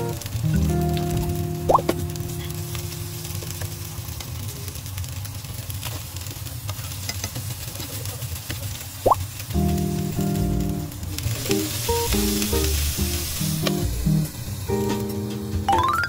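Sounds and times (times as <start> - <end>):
meatballs sizzling in oil: 0.0 - 16.0.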